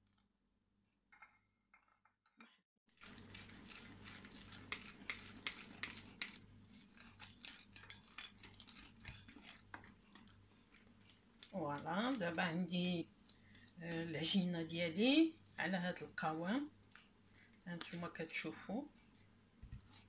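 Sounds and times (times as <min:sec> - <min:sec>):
whisk clicking against glass bowl: 0:03.3 - 0:11.9.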